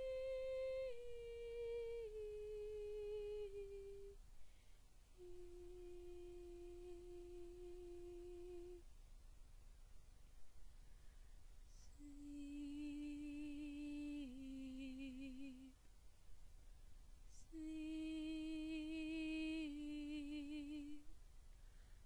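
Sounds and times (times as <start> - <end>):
soprano voice singing: 0.0 - 4.2, 5.2 - 8.8, 11.7 - 15.8, 17.3 - 21.1.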